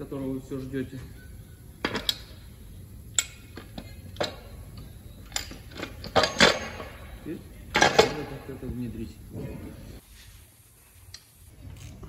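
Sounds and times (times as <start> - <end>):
metal clicks and knocks: 3.1 - 6.9, 7.7 - 8.3.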